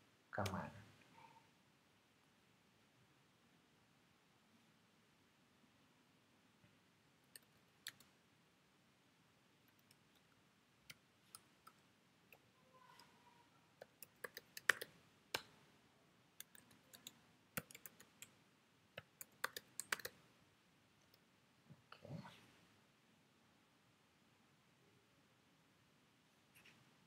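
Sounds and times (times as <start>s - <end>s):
keyboard typing: 7.3s - 8.1s, 13.8s - 15.6s, 16.4s - 18.3s, 19.0s - 20.2s.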